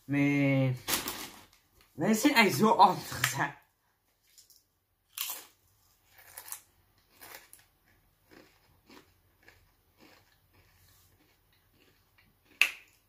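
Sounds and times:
tortilla chip crunching: 0:04.3 - 0:13.0.

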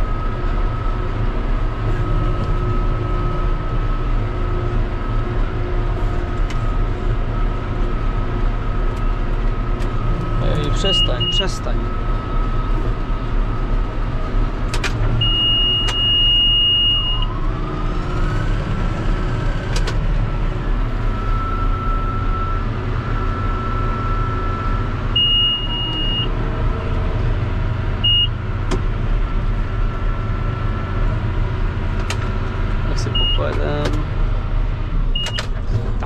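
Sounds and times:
tractor engine running: 0:00.0 - 0:36.0
high electronic beep: 0:10.4 - 0:11.7, 0:33.0 - 0:33.5.

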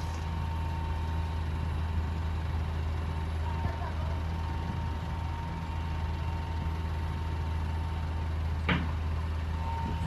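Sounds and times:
heavy diesel engines droning: 0:00.0 - 0:10.0.

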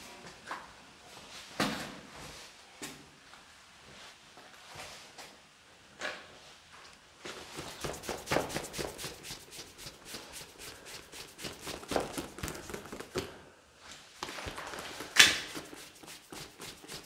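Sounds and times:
rustling with clicks and taps: 0:07.2 - 0:17.0.

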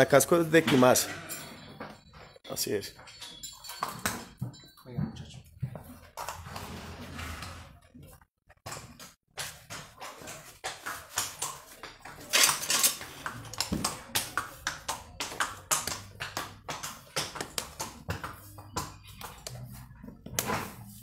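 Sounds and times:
metal tools scraping a hoof: 0:00.2 - 0:07.8, 0:12.2 - 0:13.2.

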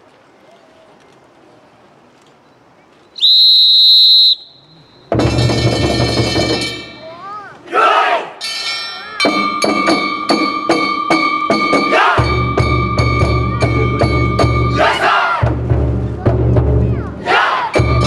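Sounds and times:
whistle blast: 0:03.2 - 0:05.3
festival drumming: 0:05.0 - 0:07.4, 0:08.8 - 0:18.0
group shout: 0:07.7 - 0:08.4, 0:11.8 - 0:12.3, 0:14.7 - 0:15.5, 0:17.2 - 0:17.8.

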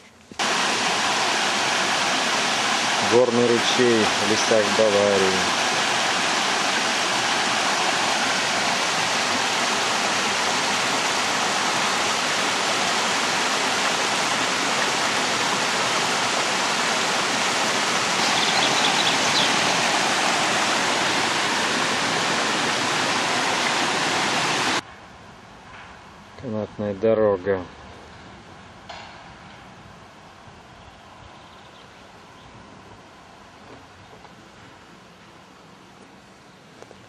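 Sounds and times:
stream rushing over rocks: 0:00.4 - 0:24.8.

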